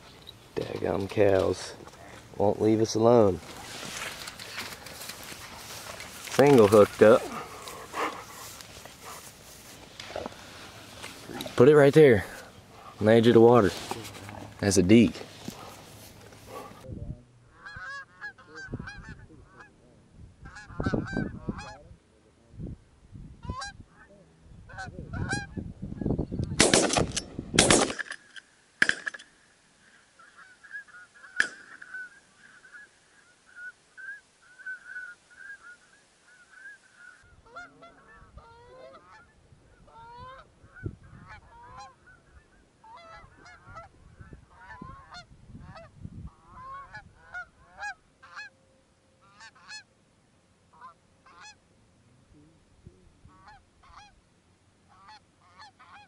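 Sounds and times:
bumps and rustles near microphone: 0.0s - 16.9s
geese honking: 1.0s - 16.8s, 17.5s - 19.8s, 20.4s - 21.8s, 23.4s - 24.1s, 24.7s - 25.6s, 30.1s - 48.6s, 49.2s - 49.9s, 50.7s - 51.6s, 53.3s - 54.2s, 54.9s - 56.0s.

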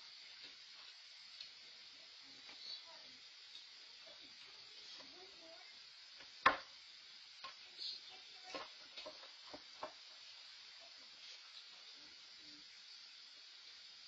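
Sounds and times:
microphone hiss: 0.0s - 14.0s
toys clicking and knocking: 8.4s - 10.0s.

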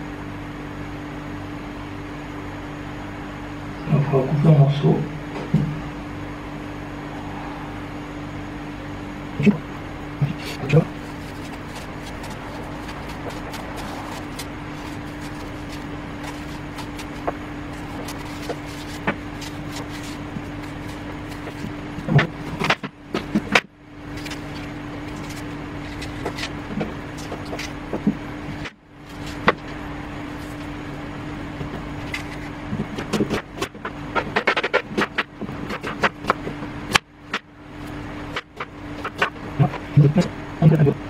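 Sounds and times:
steady mechanical hum: 0.0s - 41.0s
knife cutting an apple: 10.2s - 30.7s, 32.0s - 37.4s.

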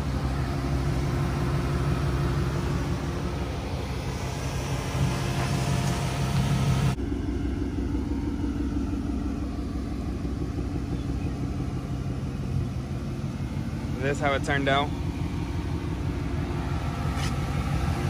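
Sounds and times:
car engine idling: 0.0s - 18.0s.

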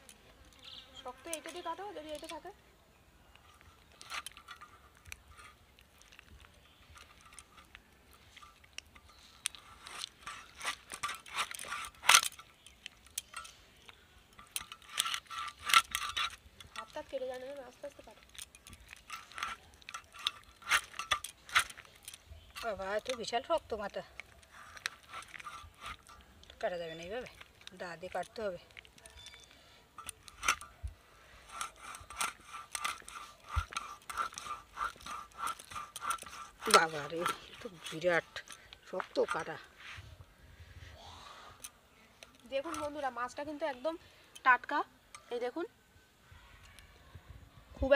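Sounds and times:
blade rasping through bone: 8.4s - 13.5s, 14.4s - 28.2s, 30.0s - 39.8s.

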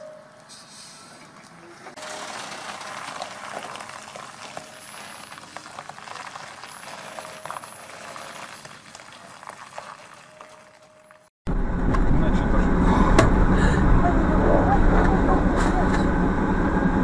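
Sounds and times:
tyres crackling on gravel: 1.4s - 11.3s.

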